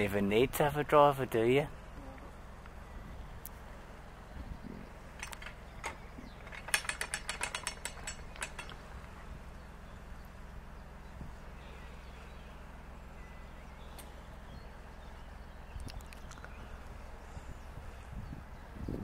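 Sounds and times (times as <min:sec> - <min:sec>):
steady low rumble: 0:00.0 - 0:19.0
ratchet and pawl clicking: 0:05.2 - 0:09.1.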